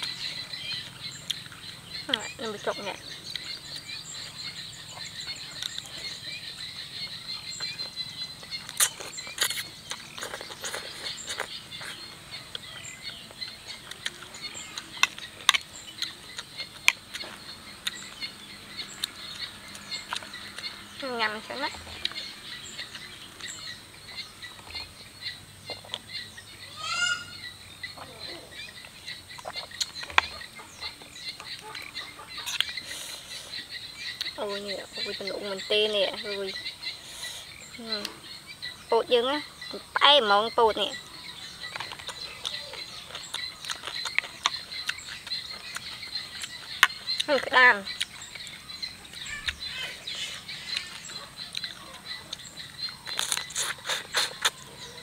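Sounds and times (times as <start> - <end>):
birds chirping: 0.0 - 55.0
loud rising bird call: 26.7 - 28.5.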